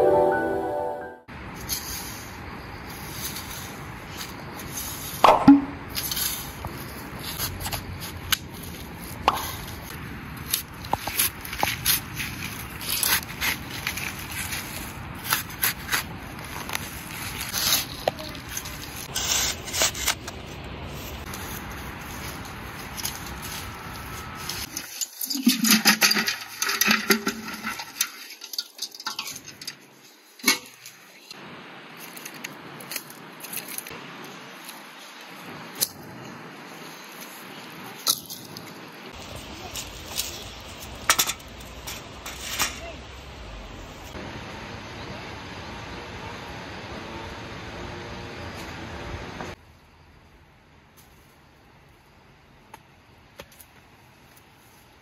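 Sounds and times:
shovel blade scraping earth: 5.9 - 29.7
dry sticks clattering: 21.3 - 31.3.

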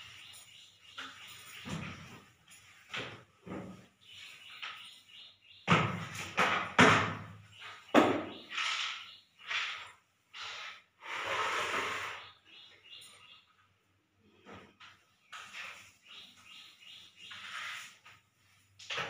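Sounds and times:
broom sweeping a tiled floor: 8.5 - 12.2, 15.3 - 19.0.

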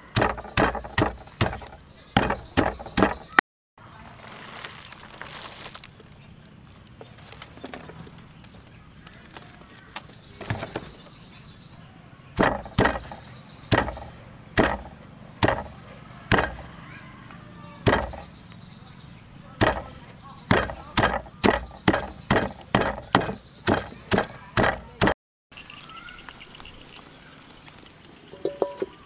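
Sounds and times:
pestle pounding in stone mortar: 0.0 - 3.4, 12.4 - 16.7, 17.8 - 18.3, 19.6 - 25.2.

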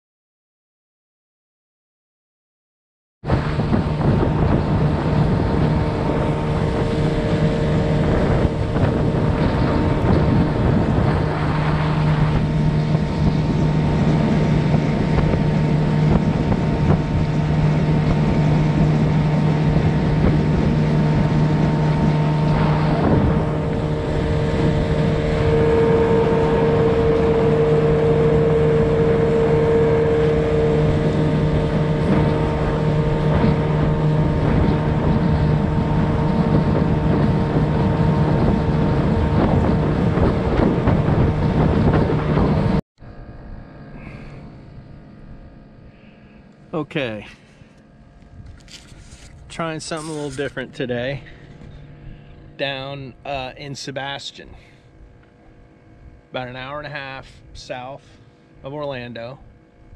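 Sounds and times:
wind buffeting microphone: 3.2 - 45.8
outboard motor drone: 3.2 - 59.9
water rushing along hull: 3.3 - 59.9.

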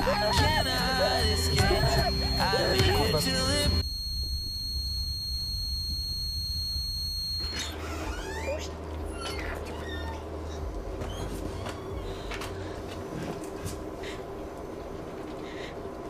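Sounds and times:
high-pitched tone: 0.0 - 7.7
low hum: 0.0 - 11.3
train low rumble: 10.0 - 16.0.

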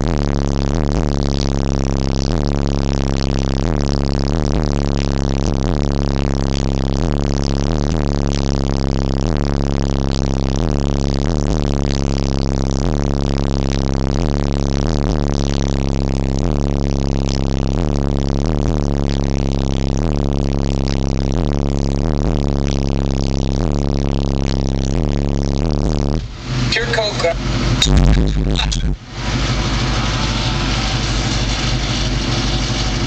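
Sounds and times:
loud deep bass tone: 0.0 - 33.0
buzzing and rattling interior: 25.6 - 33.0.

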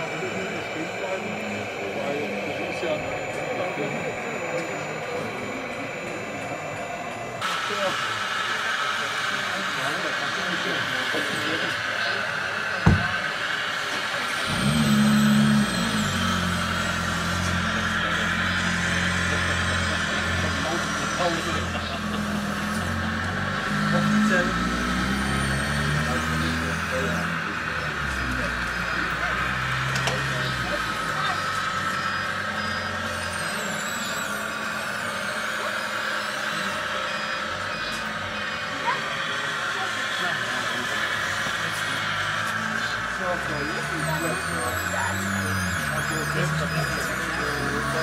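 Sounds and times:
model machine engine drone: 0.0 - 48.0
thin wavering high whine: 0.0 - 48.0.

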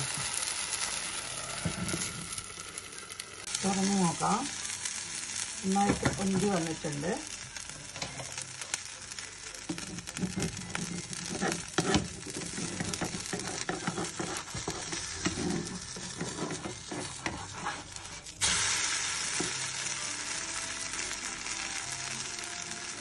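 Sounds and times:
food sizzling in oil: 0.0 - 23.0
spatula scraping a pan: 9.8 - 18.5.

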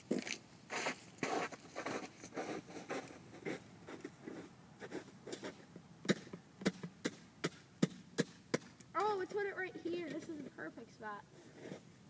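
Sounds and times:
footsteps crunching in snow: 0.1 - 4.5.

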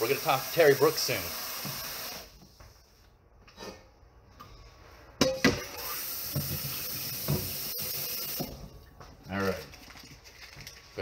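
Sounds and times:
tap running water: 0.0 - 2.3, 5.7 - 10.8.

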